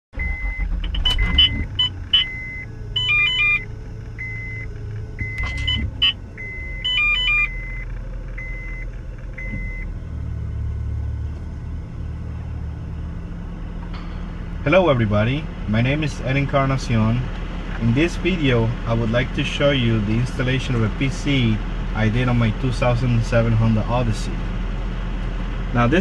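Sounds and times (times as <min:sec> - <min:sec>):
low vehicle rumble: 0:00.1 - 0:26.0
short electronic beeps: 0:00.2 - 0:09.9.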